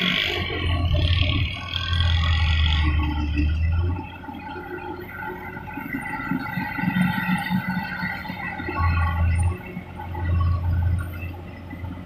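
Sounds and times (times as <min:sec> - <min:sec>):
combine harvester drone: 0:00.0 - 0:12.0
steady mechanical whine: 0:00.0 - 0:12.0.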